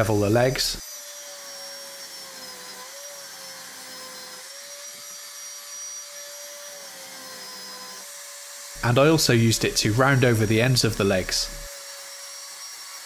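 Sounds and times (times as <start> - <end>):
belt sander whining: 8.8 - 11.7.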